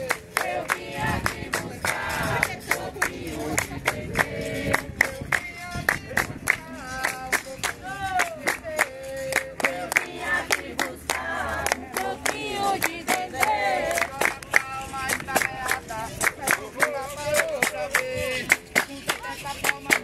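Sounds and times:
rhythmic handclapping: 0.0s - 20.0s
chorus singing call and response: 8.8s - 15.0s.

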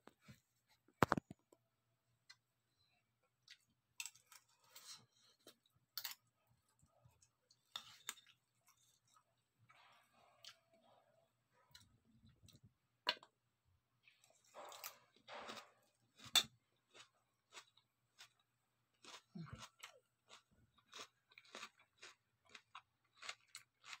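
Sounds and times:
person chewing crunchy salad: 14.2s - 24.0s.

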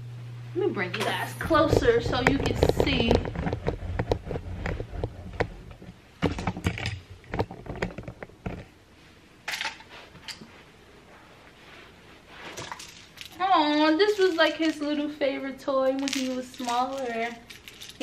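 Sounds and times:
camera handling knocks and rustles: 1.7s - 8.7s.

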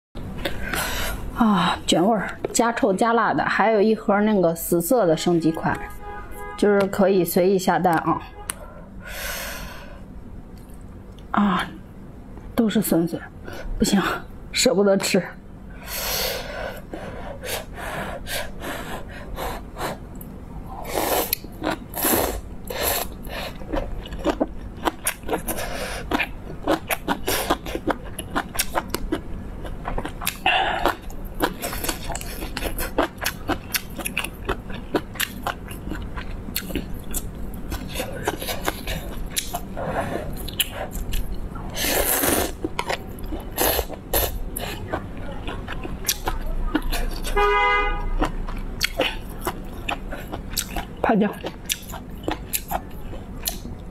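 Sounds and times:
wet chewing and mouth smacks: 23.0s - 39.7s, 40.4s - 47.4s, 48.2s - 53.9s.

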